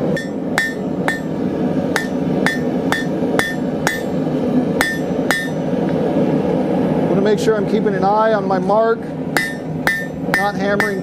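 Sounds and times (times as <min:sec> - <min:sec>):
hammer striking steel on anvil: 0:00.0 - 0:04.2, 0:04.8 - 0:05.6, 0:09.4 - 0:11.0.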